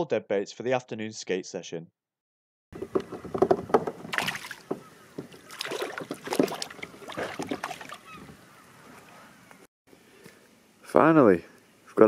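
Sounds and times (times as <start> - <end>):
fish splashing in water: 4.0 - 9.1.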